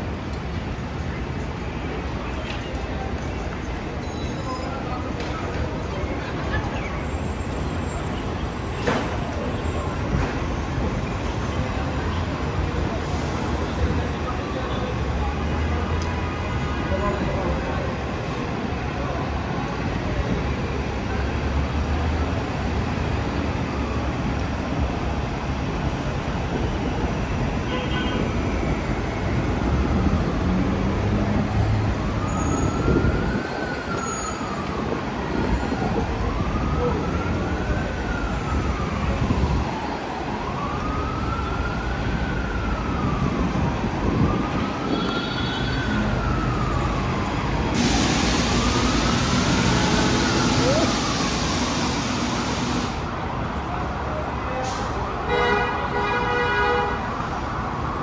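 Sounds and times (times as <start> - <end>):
street traffic: 0.0 - 58.0
emergency siren wailing: 28.4 - 53.1, 57.0 - 58.0
hiss: 47.8 - 49.4.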